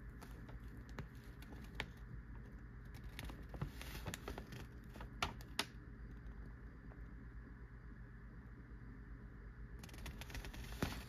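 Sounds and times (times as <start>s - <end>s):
newspaper rustling: 3.0s - 5.4s
sharp paper crackles: 9.8s - 11.0s.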